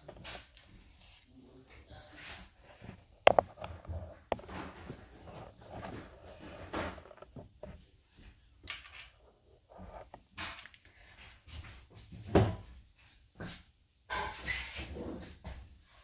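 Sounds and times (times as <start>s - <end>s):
knocks and handling noises: 2.6s - 10.9s.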